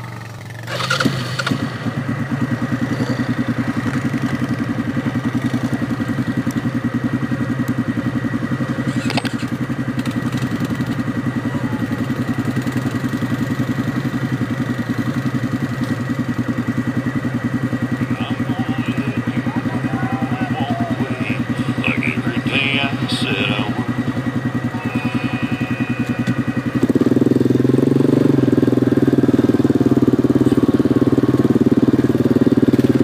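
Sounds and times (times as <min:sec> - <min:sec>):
vehicle engine running: 0:00.0 - 0:33.0
thin steady whine: 0:17.8 - 0:28.5.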